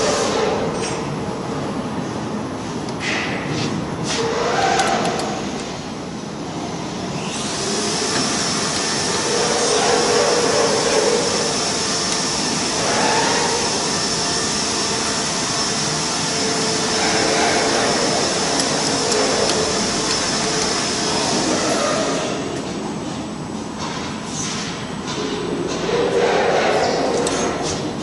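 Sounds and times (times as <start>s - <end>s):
workshop machine running: 0.0s - 28.0s.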